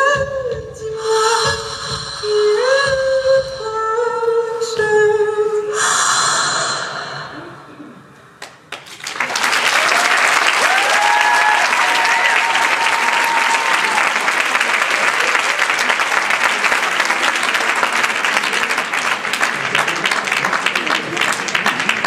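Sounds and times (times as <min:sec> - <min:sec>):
audience applauding: 0:08.4 - 0:22.0
long held cheers: 0:09.2 - 0:18.5.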